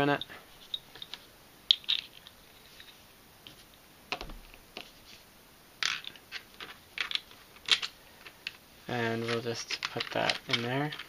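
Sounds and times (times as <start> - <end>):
plastic puzzle pieces clicking: 5.8 - 8.6, 9.6 - 11.0.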